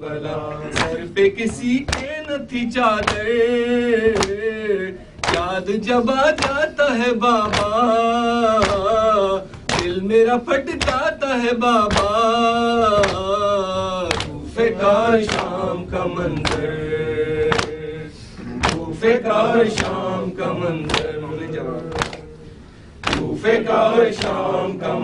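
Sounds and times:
chest-beating slaps: 0:00.7 - 0:02.2, 0:03.0 - 0:03.3, 0:05.2 - 0:05.5, 0:06.4 - 0:06.6, 0:07.4 - 0:07.8, 0:08.6 - 0:08.9, 0:09.5 - 0:10.0, 0:10.8 - 0:11.1, 0:11.9 - 0:12.2, 0:12.8 - 0:13.3, 0:15.2 - 0:15.6, 0:17.4 - 0:17.8, 0:18.5 - 0:19.0, 0:19.6 - 0:20.0, 0:20.8 - 0:21.2, 0:21.8 - 0:22.3, 0:23.0 - 0:23.4, 0:24.1 - 0:24.4.

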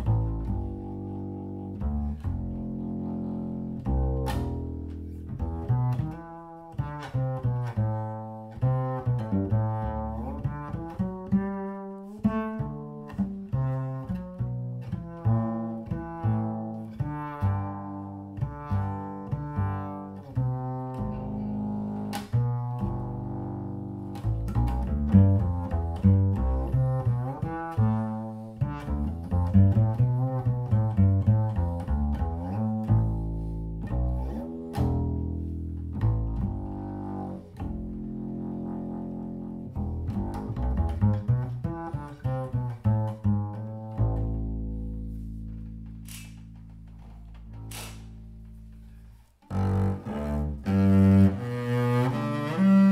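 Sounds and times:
double bass plucked: 0:00.0 - 0:52.9
short clicks: 0:46.0 - 0:46.7, 0:47.6 - 0:48.2.

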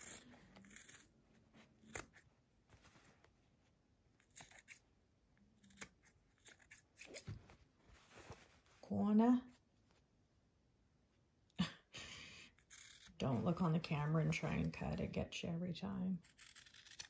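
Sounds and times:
scissors snipping fabric: 0:00.0 - 0:02.3, 0:05.6 - 0:07.2, 0:16.2 - 0:17.0.

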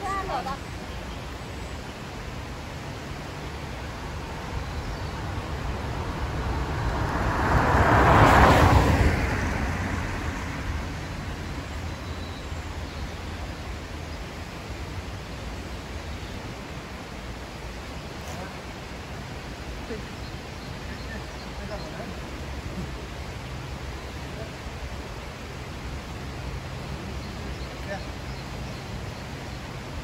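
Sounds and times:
car driving past: 0:03.9 - 0:12.8.

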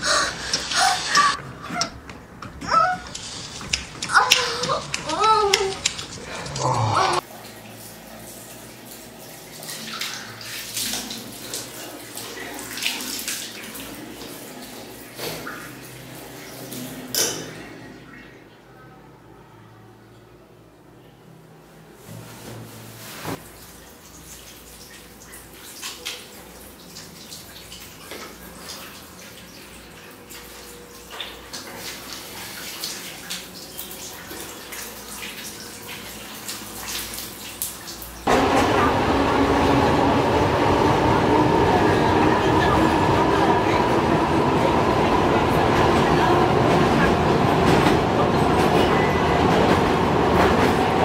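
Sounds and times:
shower water splashing: 0:00.0 - 0:01.4, 0:02.7 - 0:18.4, 0:22.0 - 0:51.0
tap water splashing into sink: 0:08.9 - 0:15.8.

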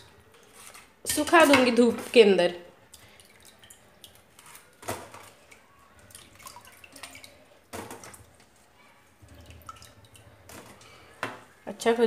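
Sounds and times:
water splashing and dripping: 0:02.8 - 0:08.5, 0:09.2 - 0:11.0.

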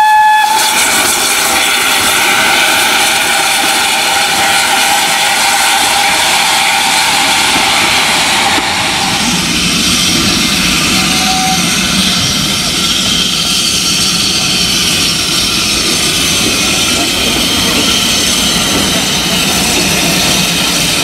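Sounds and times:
steam locomotive steady rush: 0:00.0 - 0:21.0.

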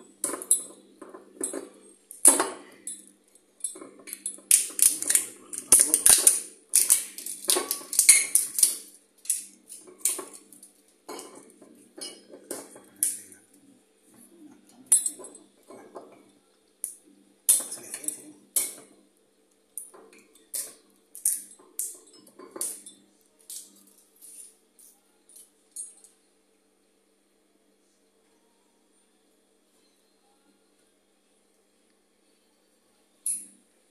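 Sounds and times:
cutlery and dishes clinking: 0:00.0 - 0:13.4, 0:14.8 - 0:16.3, 0:17.5 - 0:19.0, 0:19.8 - 0:26.2
faint steady hum: 0:00.0 - 0:33.9.

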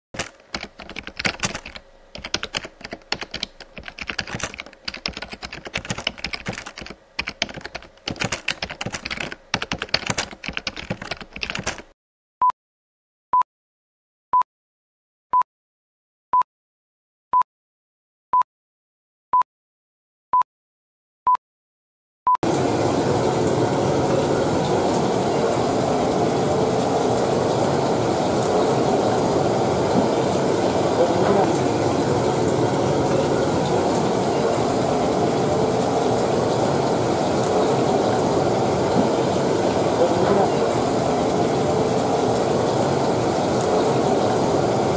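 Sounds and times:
keyboard typing: 0:00.2 - 0:12.0
kitchen background rushing noise: 0:22.4 - 0:44.9.

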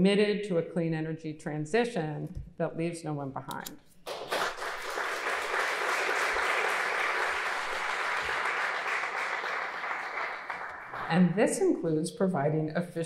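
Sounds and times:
audience applauding: 0:04.1 - 0:11.2.

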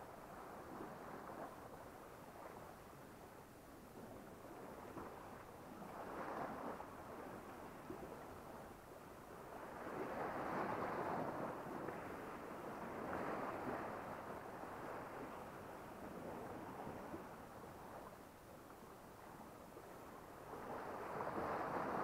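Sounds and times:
sea waves washing ashore: 0:04.0 - 0:22.0.

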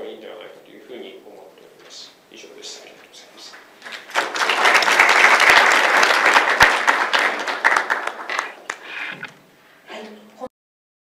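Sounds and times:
audience applause: 0:03.8 - 0:09.3.

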